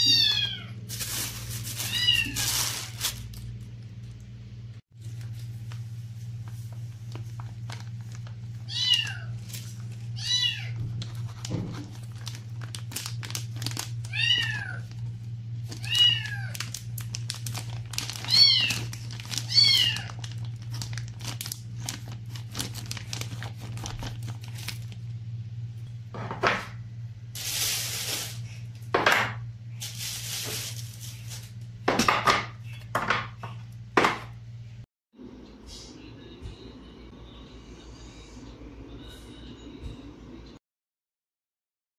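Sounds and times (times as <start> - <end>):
cat meowing: 0.0 - 0.7, 8.7 - 9.4, 14.1 - 14.8
steady low hum: 0.1 - 40.6
plastic bag rustling: 0.8 - 3.8, 5.0 - 25.1, 27.4 - 28.7, 29.7 - 31.6.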